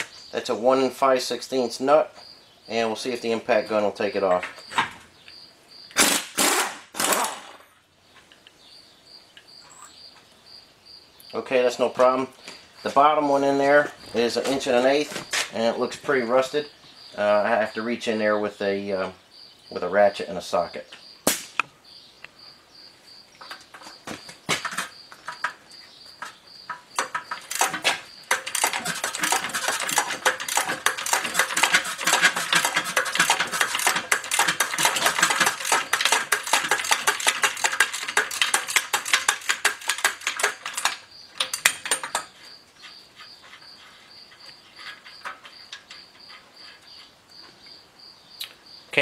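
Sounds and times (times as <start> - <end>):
ratchet wrench clicking: 27.0 - 42.2.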